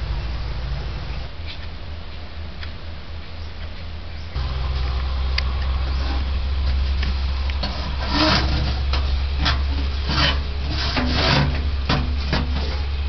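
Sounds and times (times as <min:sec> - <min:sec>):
water spray hissing on hot pipe: 0:04.4 - 0:13.0.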